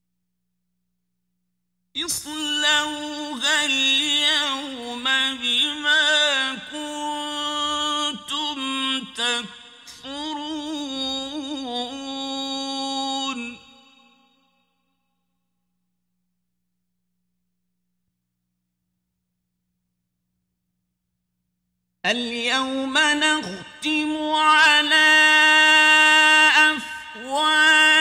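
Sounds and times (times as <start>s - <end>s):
man chanting recitation: 2.0s - 13.9s, 22.1s - 28.0s.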